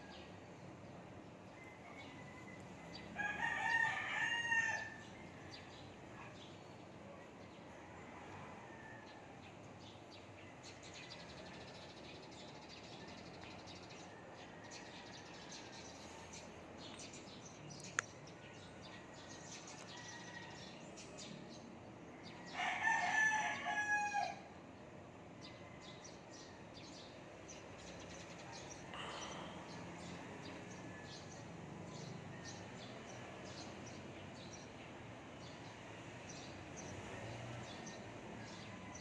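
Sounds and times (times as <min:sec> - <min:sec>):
rooster crowing: 0:01.5 - 0:05.8, 0:22.4 - 0:24.5.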